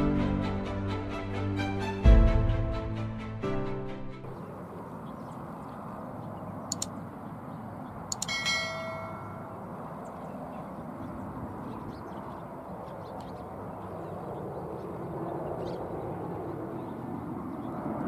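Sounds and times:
mouse clicks: 6.7s - 6.9s, 8.1s - 8.4s
notification bell chime: 8.2s - 9.6s.

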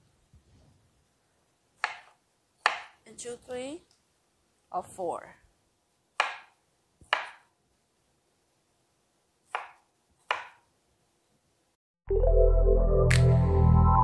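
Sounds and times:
knife striking cutting board: 1.8s - 3.0s, 6.2s - 7.5s, 9.5s - 10.7s
background music: 12.1s - 14.0s.

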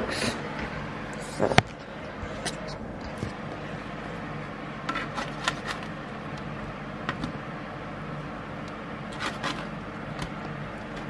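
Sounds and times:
steady hum: 0.0s - 11.0s
spatula scraping metal tray: 4.9s - 5.9s, 9.1s - 9.7s.

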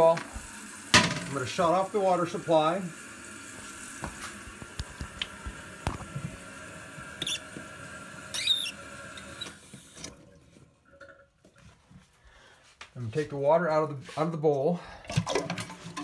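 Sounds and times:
toilet tank refilling: 0.0s - 12.0s, 14.9s - 16.0s
valve squeaks: 7.2s - 7.6s, 8.3s - 9.7s.

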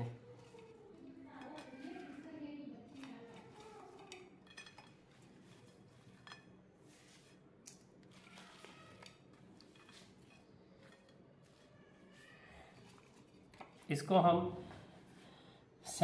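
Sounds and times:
fries clinking on ceramic plates: 2.9s - 6.6s.

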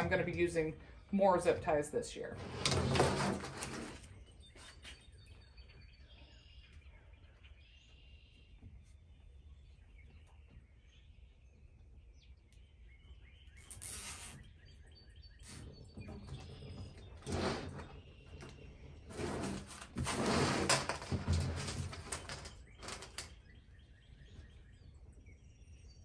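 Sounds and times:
birds chirping: 3.9s - 19.2s, 22.1s - 26.0s
zip ties ratcheting: 13.6s - 14.4s.

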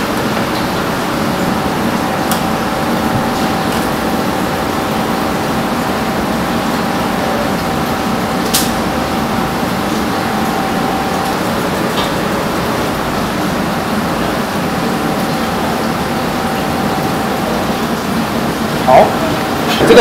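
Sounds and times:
kitchen machinery rushing noise: 0.0s - 20.0s
thin steady tone: 12.5s - 19.5s.

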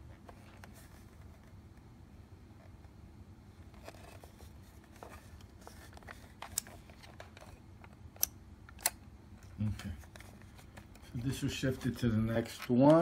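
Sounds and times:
sharp plastic clicks: 8.1s - 9.0s.

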